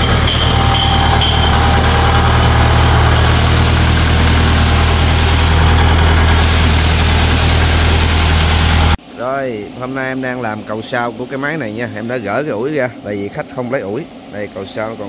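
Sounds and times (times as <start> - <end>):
tractor diesel engine running: 0.0 - 9.0.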